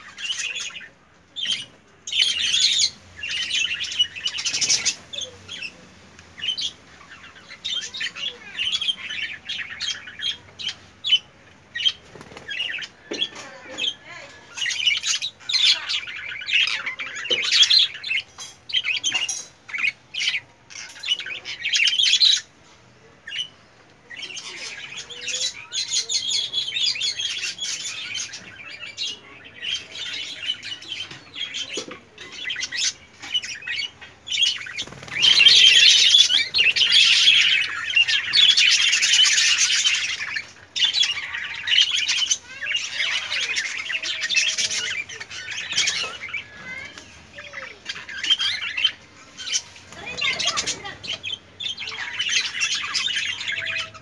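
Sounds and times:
budgerigars chattering: 0:26.4 - 0:54.0.

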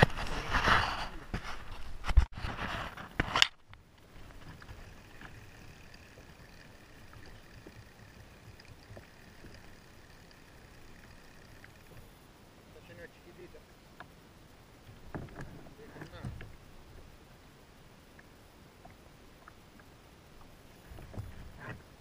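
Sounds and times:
camera handling rubbing and knocks: 0:00.0 - 0:04.8
water and wind hiss: 0:02.6 - 0:22.0.

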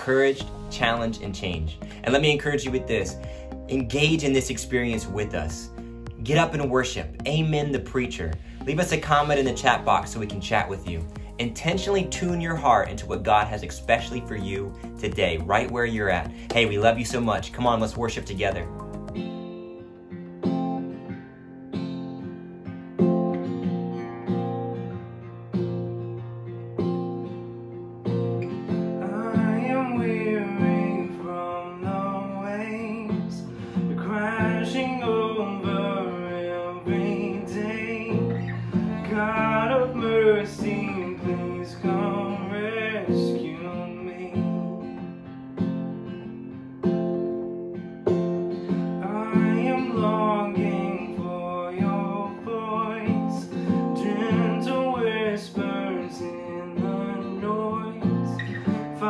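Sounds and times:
man singing: 0:00.0 - 0:18.8, 0:29.0 - 0:44.8, 0:49.0 - 0:59.0
strummed acoustic guitar: 0:00.0 - 0:59.0.

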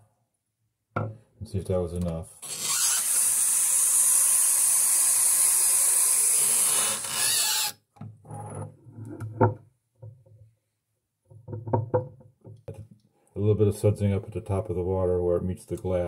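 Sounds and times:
glass bottle knocking in sink: 0:11.4 - 0:12.2.

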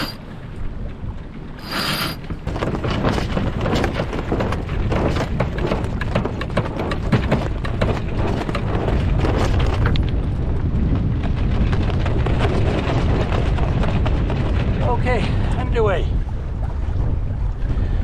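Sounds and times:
wind buffeting microphone: 0:00.0 - 0:18.0
clicks and knocks: 0:02.2 - 0:10.2.

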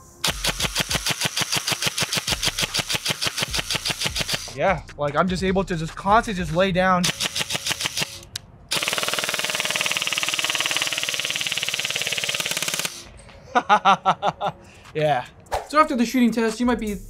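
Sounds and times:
airsoft gun automatic fire: 0:00.2 - 0:04.6, 0:07.0 - 0:13.1.

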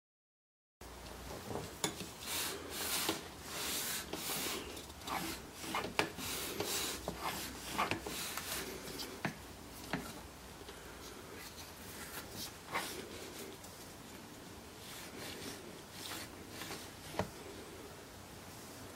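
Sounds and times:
wood rubbing and scraping: 0:02.2 - 0:10.2.

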